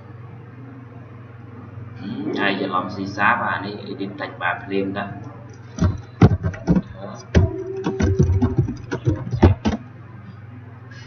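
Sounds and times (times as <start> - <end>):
typing on computer keyboard: 5.8 - 9.8.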